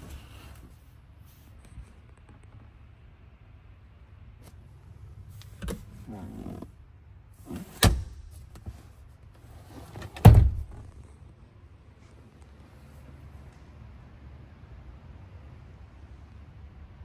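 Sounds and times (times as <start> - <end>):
leather seat creaking: 5.5 - 6.8, 7.4 - 11.3.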